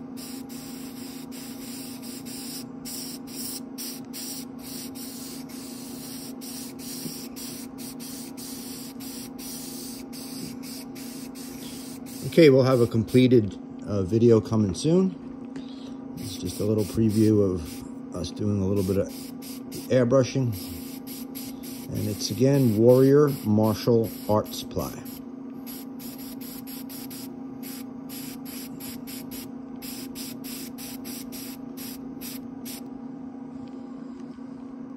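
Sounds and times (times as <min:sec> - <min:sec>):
airbrush spraying hiss: 0:00.0 - 0:12.8, 0:16.3 - 0:17.8, 0:18.7 - 0:19.9, 0:20.5 - 0:24.4, 0:25.0 - 0:32.8
steady low hum: 0:00.0 - 0:34.9.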